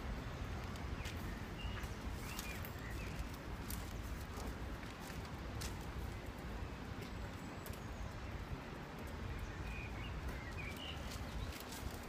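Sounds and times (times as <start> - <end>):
bird chirps: 9.4 - 11.8.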